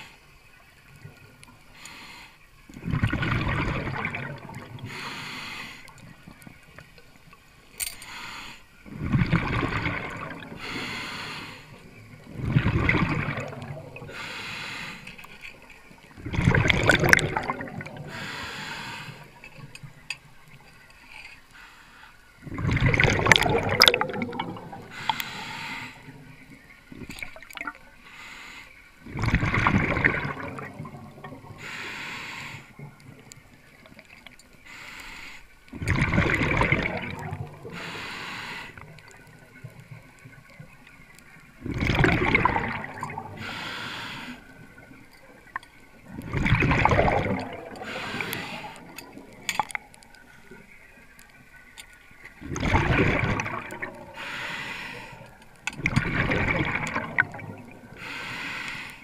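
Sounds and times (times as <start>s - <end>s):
bubbling exhalation underwater: 2.8s - 4.9s, 8.9s - 10.6s, 12.3s - 14.2s, 16.2s - 18.3s, 22.4s - 25.0s, 29.0s - 31.6s, 35.7s - 37.8s, 41.6s - 43.5s, 46.0s - 50.0s, 52.4s - 54.2s, 55.7s - 58.0s
regulator inhalation hiss: 4.8s - 6.0s, 8.0s - 8.7s, 10.5s - 11.8s, 14.1s - 15.2s, 18.1s - 19.4s, 24.9s - 26.3s, 31.6s - 32.8s, 34.6s - 35.6s, 37.7s - 38.8s, 43.3s - 44.7s, 47.8s - 48.8s, 54.1s - 55.3s, 58.0s - 59.0s.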